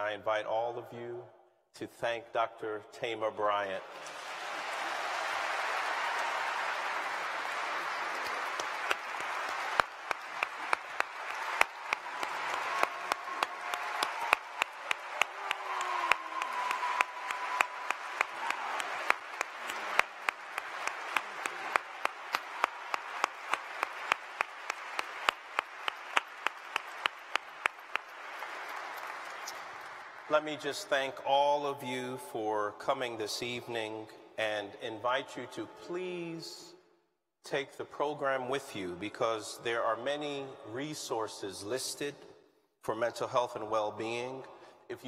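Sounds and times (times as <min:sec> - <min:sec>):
audience applauding: 0:03.8 - 0:30.6
rhythmic clapping in unison: 0:04.0 - 0:30.4.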